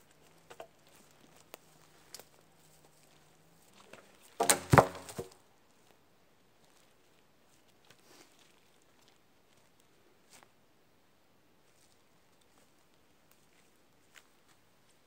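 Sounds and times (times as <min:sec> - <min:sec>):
footsteps on moss and twigs: 0:00.0 - 0:06.0, 0:06.6 - 0:10.5, 0:11.6 - 0:15.0
wooden pole clattering on ground: 0:03.9 - 0:05.4.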